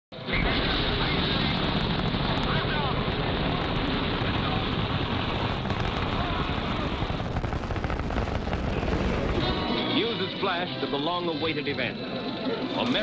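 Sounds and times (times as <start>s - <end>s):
rocket launch roar: 0.2s - 9.8s
music: 9.4s - 13.0s.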